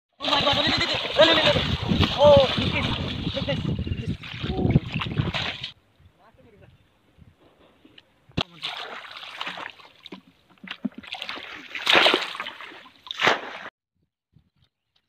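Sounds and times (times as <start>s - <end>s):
hands splashing in water: 4.2s - 5.7s, 8.4s - 13.7s.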